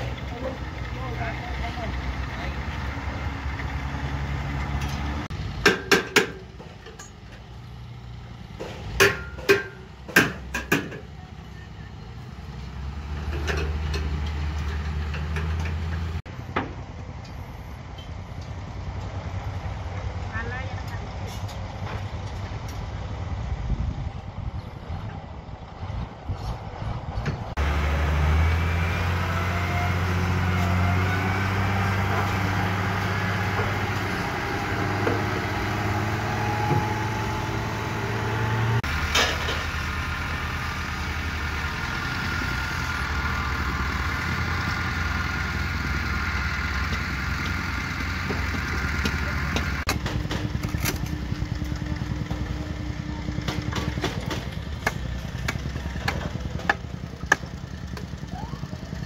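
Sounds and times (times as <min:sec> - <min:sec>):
diesel engine idling: 0:00.0 - 0:59.0
sharp metal clanks: 0:08.6 - 0:11.1.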